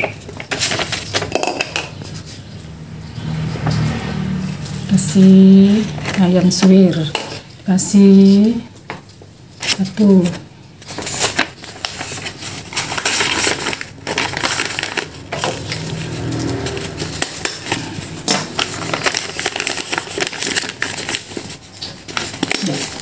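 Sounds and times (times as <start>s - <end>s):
paper crinkling and rustling: 0.0s - 2.5s, 7.3s - 23.0s.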